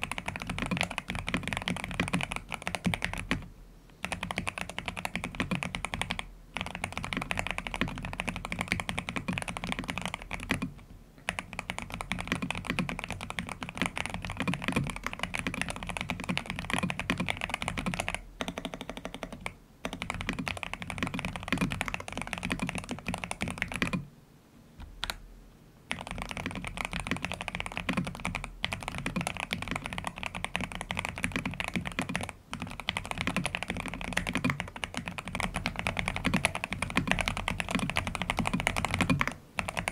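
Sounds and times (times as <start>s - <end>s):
fast typing on mechanical keyboard: 0.0s - 24.0s, 25.9s - 39.9s.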